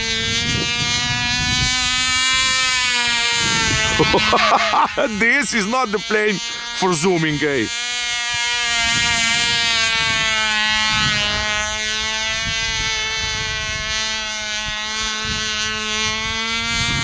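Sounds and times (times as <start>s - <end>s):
wind rumbling on microphone: 0.0s - 6.8s, 7.7s - 17.0s
model plane engine whining: 0.0s - 17.0s.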